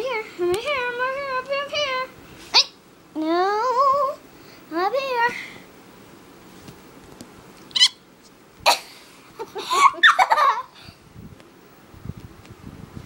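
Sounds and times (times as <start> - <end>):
laughter-like vocal sounds: 8.7 - 10.8.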